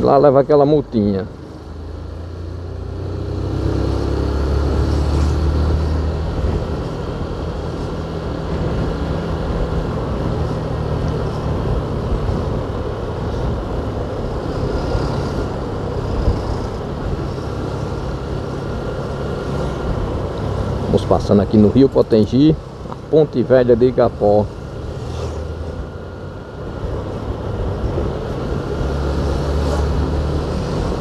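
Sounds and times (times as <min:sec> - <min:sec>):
low engine hum: 0:00.0 - 0:31.0
road noise: 0:00.0 - 0:31.0.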